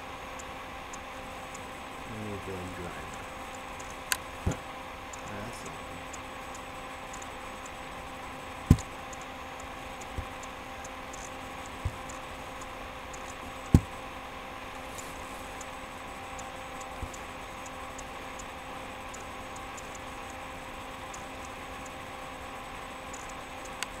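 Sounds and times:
room hum: 0.0 - 24.0
faint high ticking: 0.3 - 14.0
dull thumps: 8.6 - 8.9.

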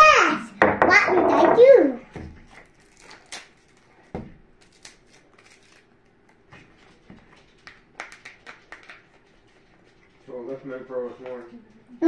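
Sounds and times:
foil pouch crinkling: 2.6 - 6.5.

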